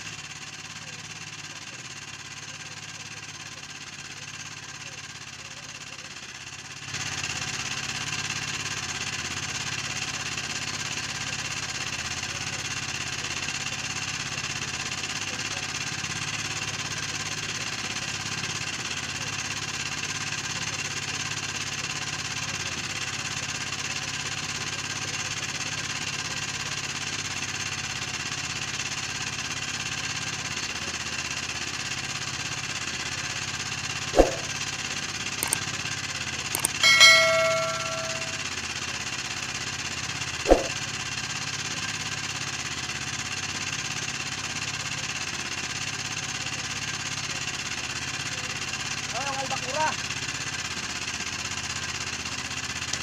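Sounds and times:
sharp knock: 34.2s - 34.5s, 36.6s - 38.4s, 40.5s - 40.7s.

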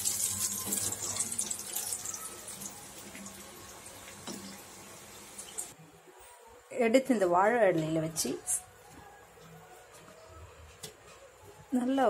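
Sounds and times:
oil sizzling while deep-frying: 0.0s - 5.8s.

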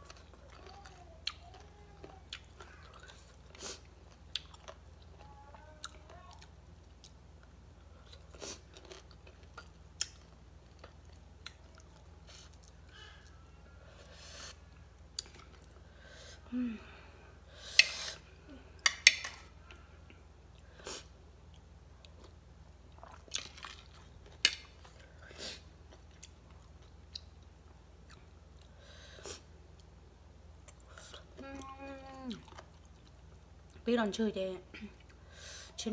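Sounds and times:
person chewing and crunching: 0.0s - 13.4s, 21.4s - 25.2s.

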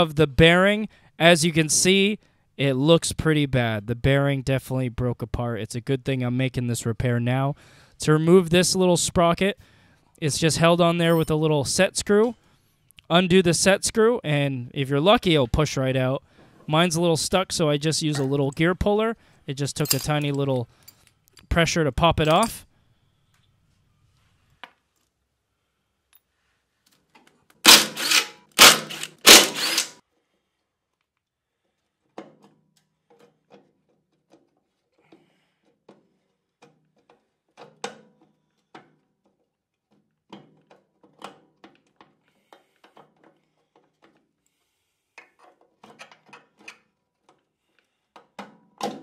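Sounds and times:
metal parts knocking and clinking: 19.7s - 21.2s, 22.2s - 22.6s.

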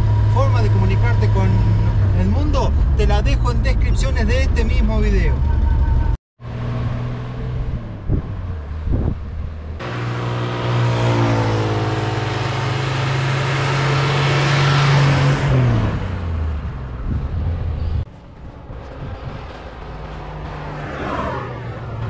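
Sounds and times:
car engine passing: 5.2s - 22.0s
tyre and wind noise: 7.8s - 9.8s, 16.6s - 20.6s.

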